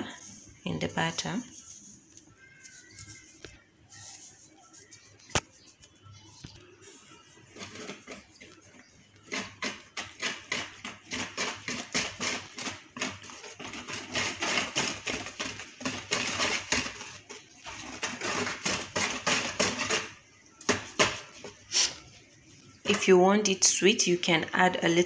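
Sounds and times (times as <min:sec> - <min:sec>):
whisk beating batter in a bowl: 0:06.7 - 0:20.2.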